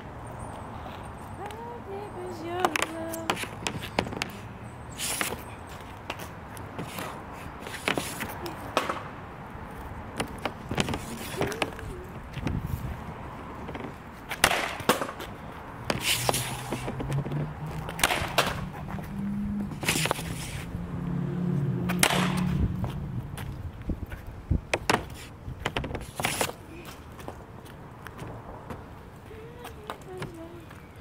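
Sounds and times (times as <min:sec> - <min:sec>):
blade scraping on concrete: 0:03.3 - 0:05.4, 0:06.8 - 0:08.4, 0:10.3 - 0:11.9, 0:15.9 - 0:20.7
hockey stick slapping pucks: 0:14.3 - 0:18.9, 0:19.8 - 0:20.5, 0:21.9 - 0:22.4, 0:24.8 - 0:26.6.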